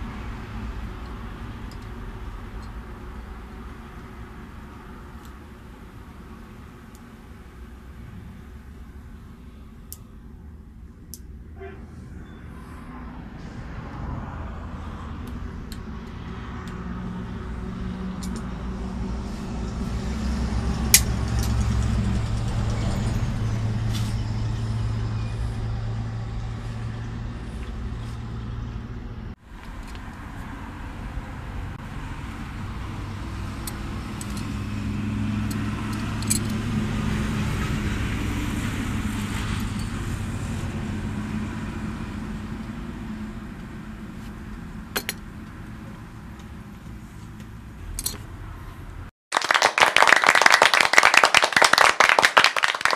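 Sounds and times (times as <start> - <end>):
vehicle engine humming: 0.0 - 49.1
metallic clicks of hand tools: 35.4 - 36.6, 48.0 - 48.2.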